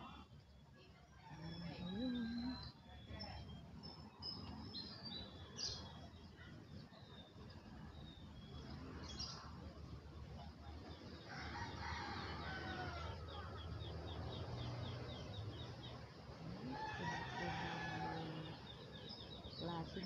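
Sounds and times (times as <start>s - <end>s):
small birds chirping: 1.2s - 20.0s
rooster crowing: 11.3s - 13.6s, 16.6s - 18.6s.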